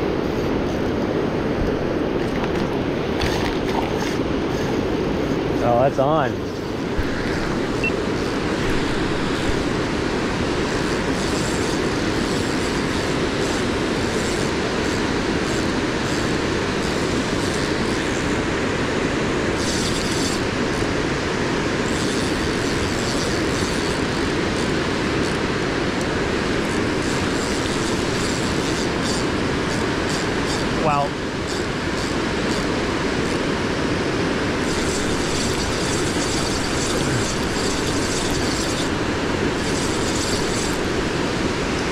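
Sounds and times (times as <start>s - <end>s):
water rushing over a dam: 2.0s - 41.9s
fishing reel clicking: 26.6s - 30.7s, 34.6s - 39.0s, 39.6s - 40.9s.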